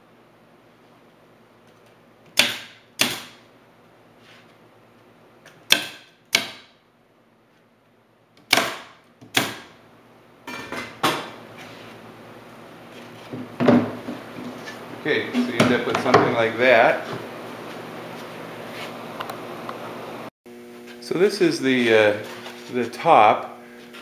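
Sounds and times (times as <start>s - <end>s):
pneumatic stapler shots: 2.3s - 3.4s, 8.4s - 9.7s.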